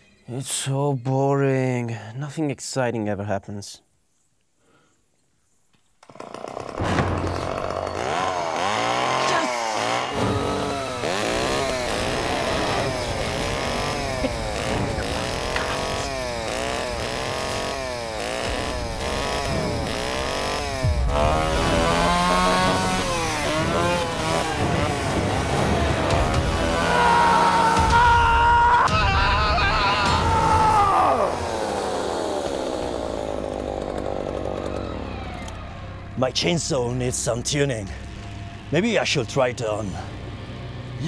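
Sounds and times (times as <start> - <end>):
chainsaw revving: 6.0 - 36.2.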